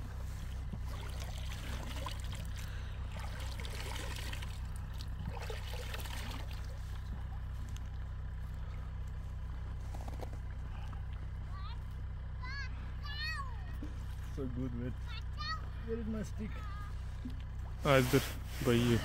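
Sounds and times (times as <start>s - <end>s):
water trickling and splashing: 0.0s - 9.5s.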